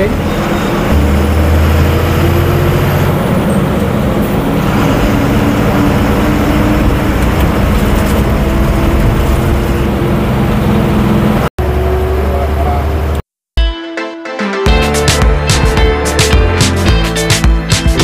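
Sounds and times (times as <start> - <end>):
bus engine droning: 0.0 - 13.3
road and tyre noise: 0.0 - 13.3.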